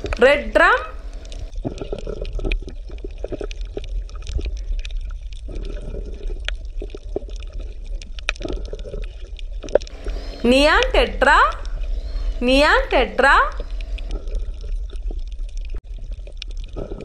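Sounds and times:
steady low rumble: 0:00.0 - 0:01.6, 0:09.9 - 0:15.0
water bubbling and gurgling: 0:01.0 - 0:10.7, 0:13.4 - 0:17.0.

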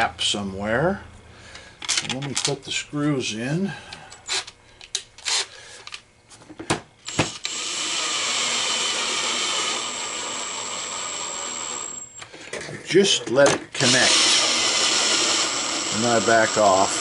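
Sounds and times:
cordless drill whining: 0:07.0 - 0:12.4, 0:13.8 - 0:17.0.

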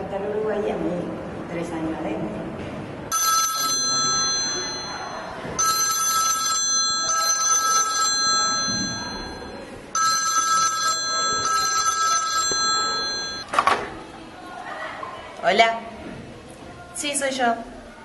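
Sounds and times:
desk telephone ringing: 0:03.1 - 0:13.5.

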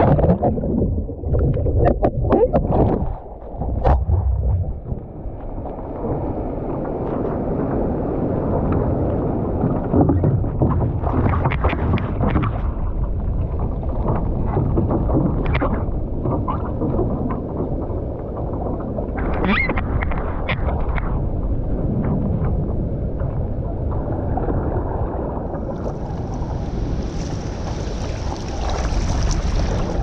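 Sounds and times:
wind rumbling on microphone: 0:00.0 - 0:30.0
paddle splashes: 0:08.9 - 0:21.2, 0:24.0 - 0:30.0
water sloshing around canoe: 0:25.4 - 0:30.0.

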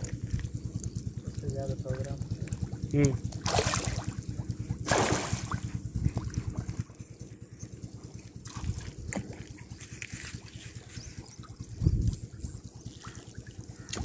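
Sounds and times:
fish splashing at water surface: 0:00.0 - 0:06.3
low continuous rumble: 0:00.0 - 0:14.0
trickling water: 0:00.0 - 0:14.0.

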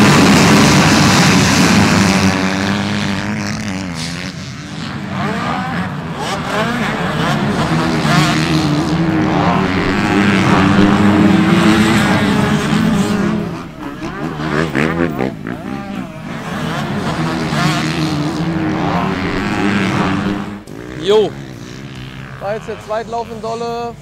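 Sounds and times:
motocross bike engines revving: 0:00.0 - 0:24.0.

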